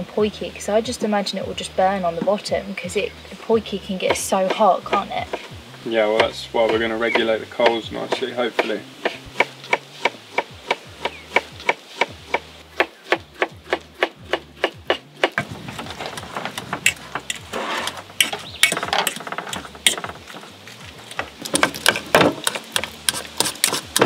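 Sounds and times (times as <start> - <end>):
knife scraping and tapping: 16.1 - 20.4, 21.0 - 24.0
knife chopping on wooden board: 21.6 - 24.0.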